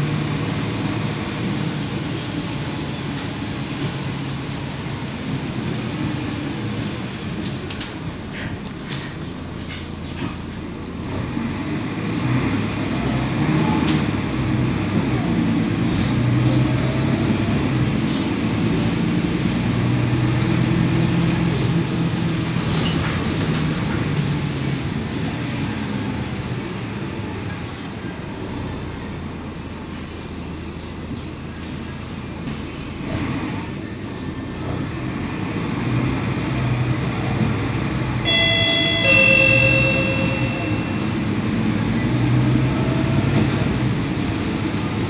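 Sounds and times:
bus diesel engine: 0.0s - 45.0s.

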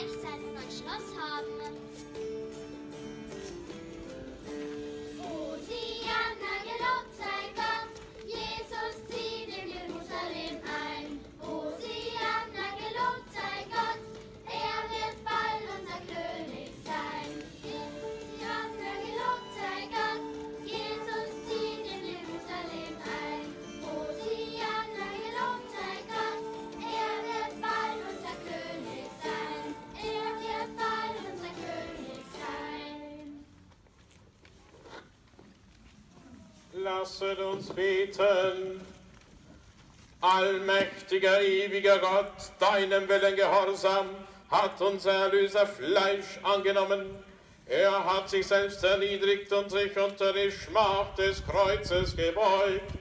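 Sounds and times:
children's choir singing: 5.0s - 33.5s.

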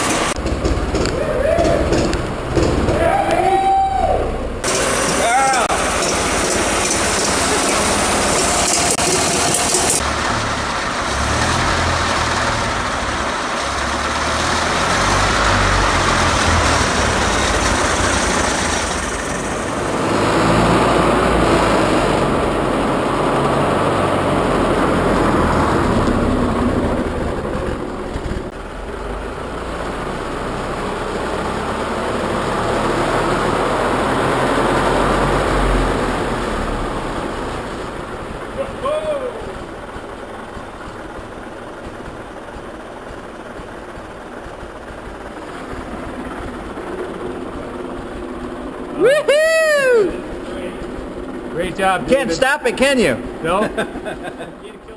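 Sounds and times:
old truck engine running: 0.0s - 54.9s.

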